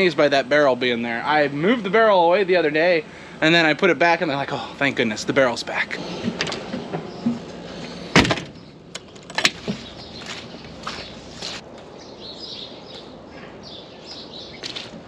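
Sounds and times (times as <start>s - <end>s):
metal door banging: 8.1s - 8.6s
footsteps on muddy ground: 9.5s - 11.7s, 14.1s - 15.0s.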